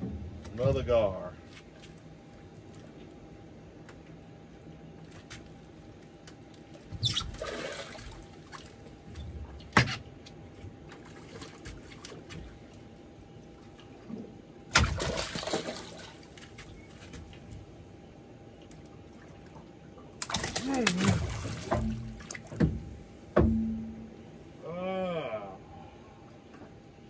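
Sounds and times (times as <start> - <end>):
water splashing and sloshing: 0.0 - 24.6, 25.8 - 27.0
sharp knock: 23.4 - 24.0.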